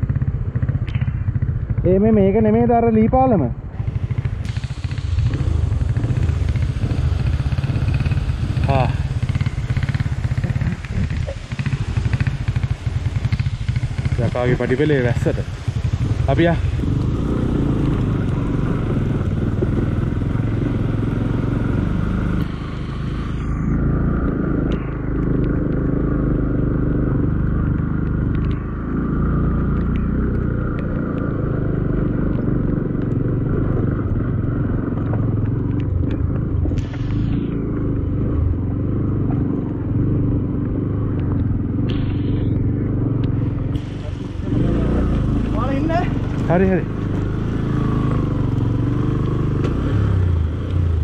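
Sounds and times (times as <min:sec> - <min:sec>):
motorcycle engine at low revs: 0:00.0 - 0:51.0
hiss: 0:03.8 - 0:20.4, 0:21.6 - 0:23.9, 0:36.7 - 0:37.8, 0:41.8 - 0:42.6, 0:43.6 - 0:46.2.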